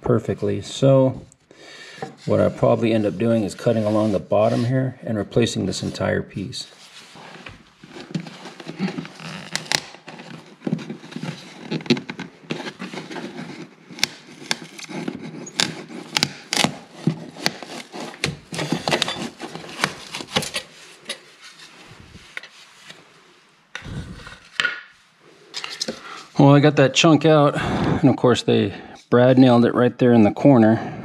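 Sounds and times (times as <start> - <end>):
wooden trim cracking and scraping: 7.5 - 21.6.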